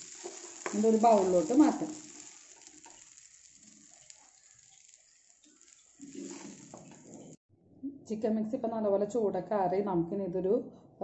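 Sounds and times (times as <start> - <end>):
faint sizzle in a pan: 0.0 - 7.4
spoon scraping a pan: 0.0 - 7.4.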